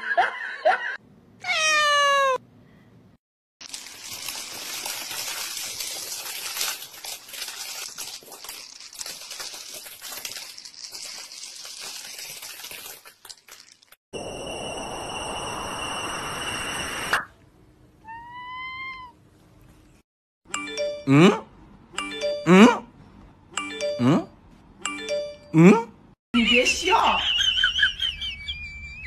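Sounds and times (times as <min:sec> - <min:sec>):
cat meowing: 0:01.4 - 0:02.4, 0:18.0 - 0:19.2
dry kibble trickling onto mat: 0:03.6 - 0:14.0.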